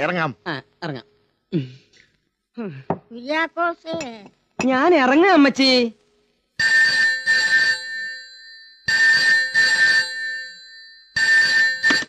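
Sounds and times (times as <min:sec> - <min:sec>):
landline telephone ringing: 0:06.6 - 0:12.0.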